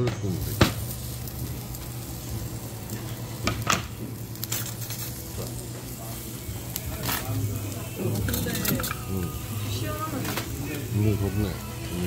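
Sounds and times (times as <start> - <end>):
meat sizzling on a grill: 0.0 - 12.0.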